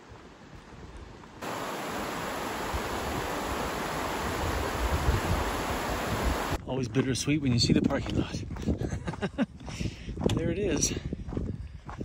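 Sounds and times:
steady rushing noise: 0:01.4 - 0:06.6.

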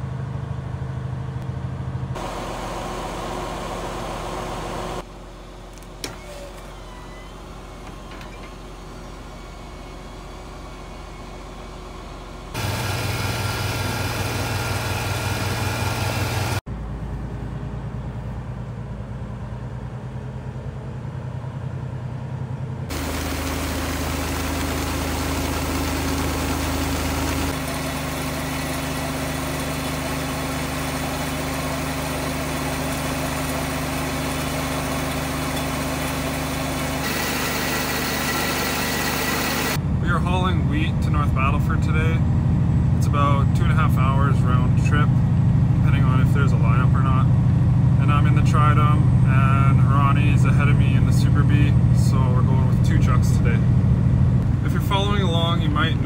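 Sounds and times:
diesel truck engine: 0:00.0 - 0:56.0
small engine running: 0:09.9 - 0:16.6, 0:22.9 - 0:39.8.

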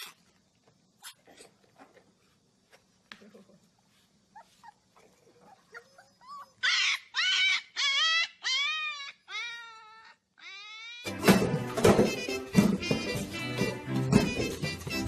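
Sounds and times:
puppy squeaking: 0:04.4 - 0:11.3
puppy howling: 0:05.0 - 0:11.1.

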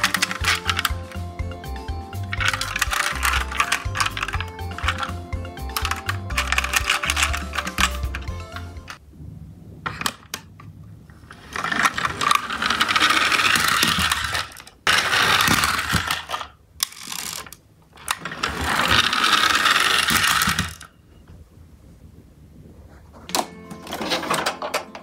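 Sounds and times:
toy motors whirring: 0:00.0 - 0:09.0, 0:11.2 - 0:20.9.

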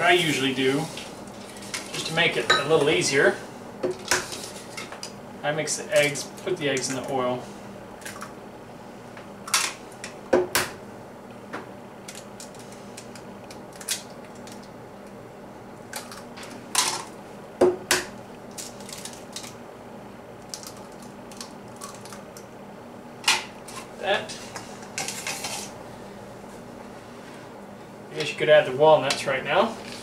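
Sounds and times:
eggshells cracking: 0:12.1 - 0:14.7, 0:20.4 - 0:22.4.

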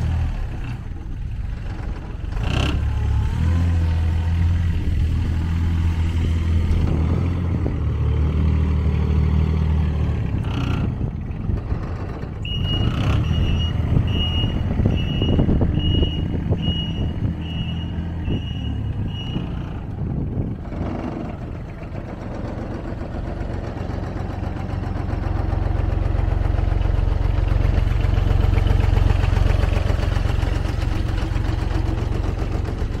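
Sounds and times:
diesel engine running: 0:00.0 - 0:33.0
warning alarm beeps: 0:12.5 - 0:19.5.

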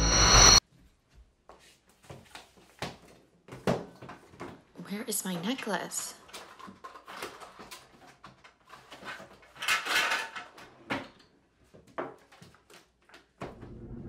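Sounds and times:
objects clattering in a drawer: 0:06.1 - 0:12.8.

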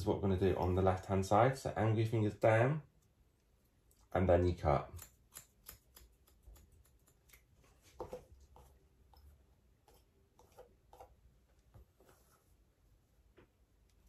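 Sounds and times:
scissors snipping hair: 0:03.8 - 0:07.6.

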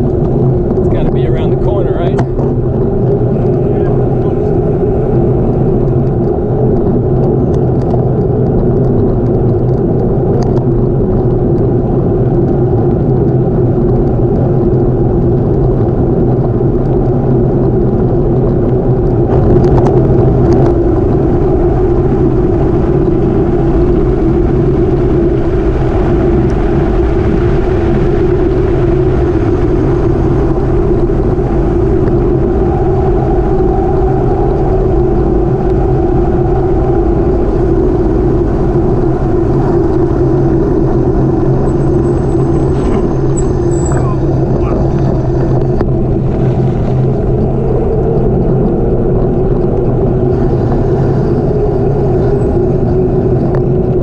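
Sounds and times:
wind rushing on microphone: 0:00.0 - 0:54.0
tyres rumbling on wet gravel: 0:37.5 - 0:54.0.

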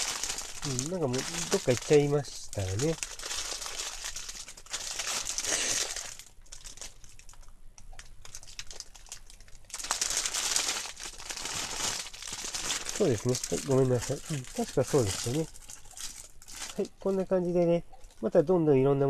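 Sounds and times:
plastic bags crinkling: 0:00.0 - 0:18.3.

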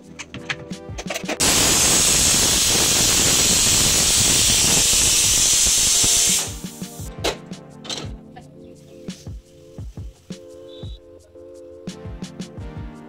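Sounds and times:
pressure cooker steam hiss: 0:01.4 - 0:07.1.

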